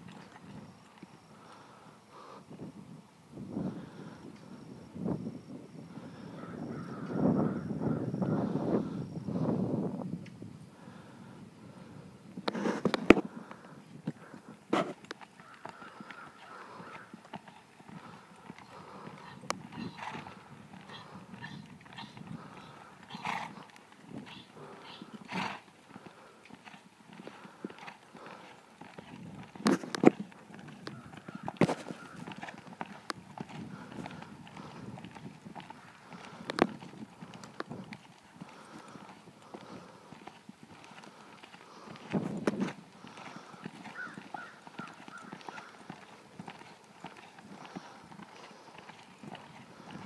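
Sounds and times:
muffled hoofbeats on dirt: 0.0 - 1.7, 11.7 - 50.0.

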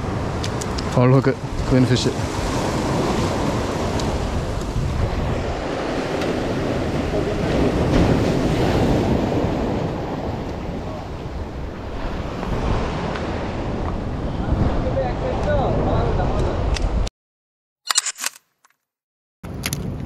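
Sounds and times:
wind buffeting microphone: 0.0 - 17.1.

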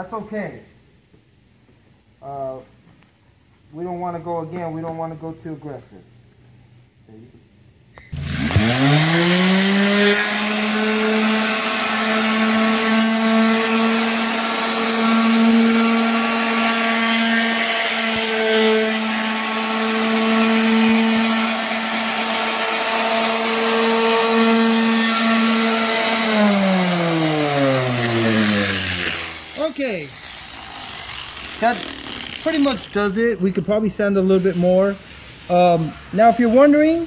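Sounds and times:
orbital sander whining: 8.1 - 33.3.

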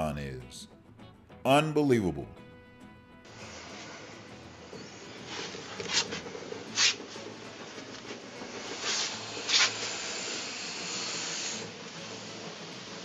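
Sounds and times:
snake hissing: 8.8 - 11.5.

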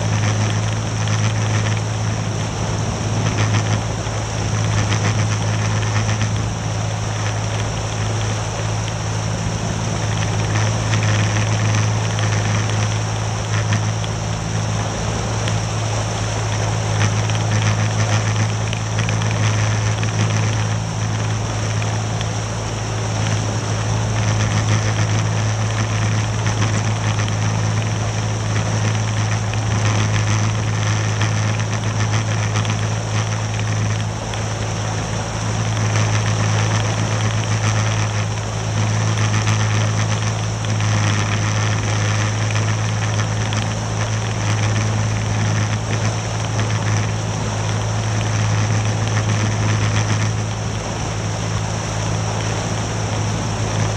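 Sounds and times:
outboard motor droning: 0.0 - 53.9
water and wind noise: 0.0 - 53.9.

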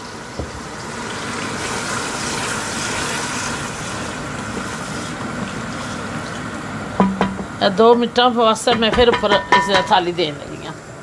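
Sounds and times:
onions sizzling in oil: 0.0 - 7.7.

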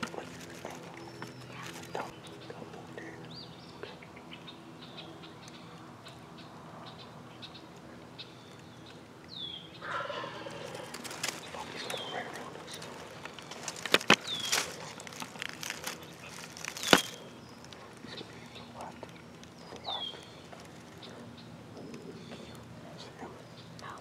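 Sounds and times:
turkey gobbling: 9.8 - 13.2
faint bird chirps: 16.0 - 24.0.

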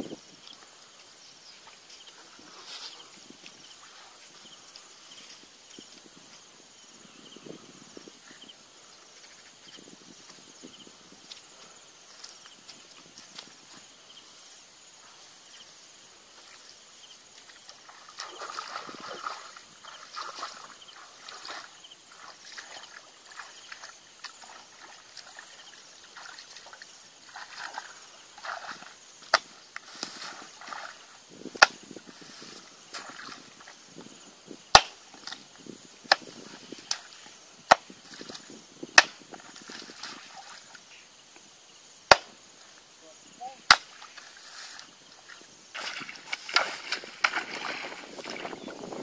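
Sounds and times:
muddy water sloshing: 17.3 - 31.3, 32.1 - 33.8, 36.4 - 40.8, 43.7 - 49.0.

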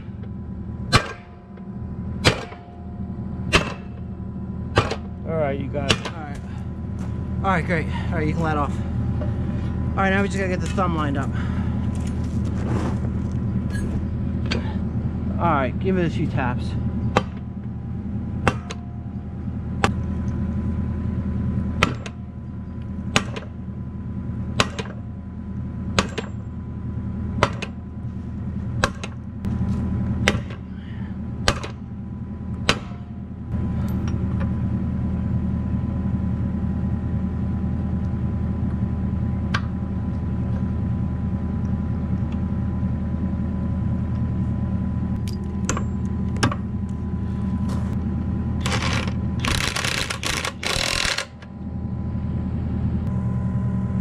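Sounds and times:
diesel engine idling: 0.0 - 54.0
impact wrench bursts: 48.6 - 51.4.

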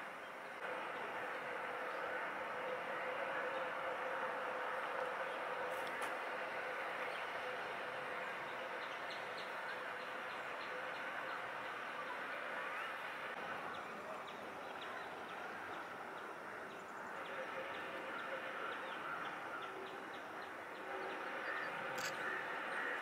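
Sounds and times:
outdoor background hiss: 0.0 - 23.0
birds chirping: 4.7 - 23.0.

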